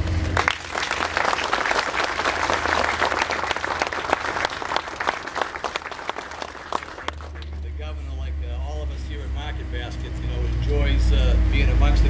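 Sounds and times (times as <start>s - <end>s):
crowd applauding: 0.2s - 8.0s.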